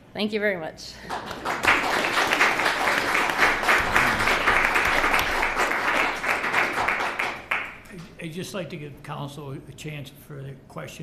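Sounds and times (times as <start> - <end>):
audience applauding: 1.1 - 7.9.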